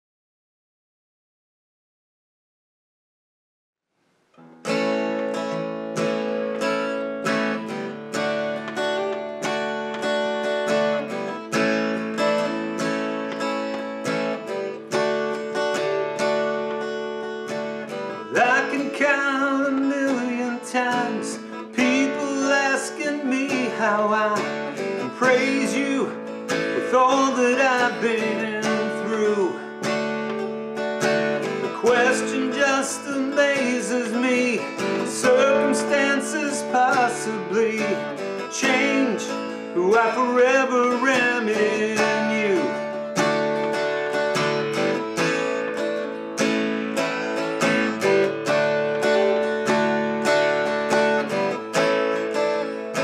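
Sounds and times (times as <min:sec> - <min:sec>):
acoustic guitar strumming: 0:04.3 - 0:53.0
man singing: 0:18.1 - 0:30.2, 0:31.2 - 0:43.4.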